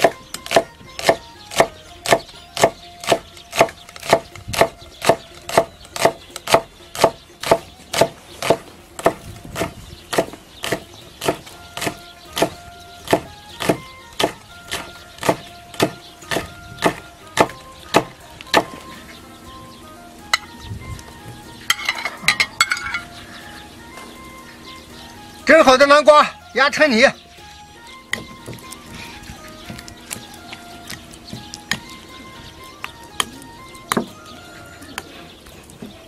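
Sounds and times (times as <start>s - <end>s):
cleaver chopping on wooden block: 0.0s - 18.8s, 28.1s - 28.8s.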